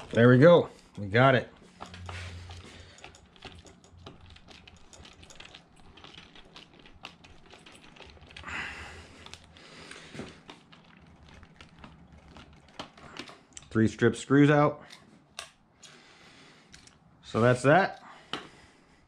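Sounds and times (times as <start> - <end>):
small metal parts clicking: 1.7 - 13.8.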